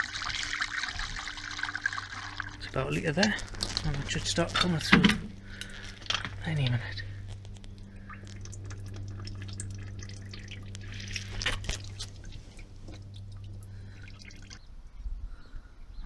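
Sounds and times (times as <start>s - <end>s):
water dripping into plastic bucket: 0.0s - 4.1s, 7.4s - 14.6s
steady low hum: 0.0s - 16.0s.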